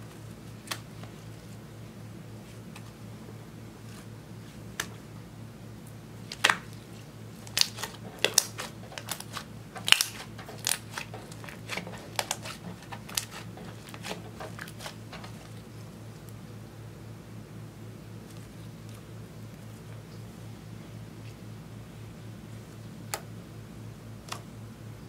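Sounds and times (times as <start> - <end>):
low steady hum: 0.0 - 25.0.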